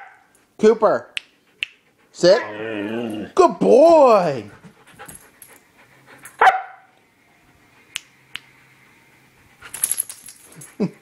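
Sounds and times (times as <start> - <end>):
dog barking: 6.4 - 6.9.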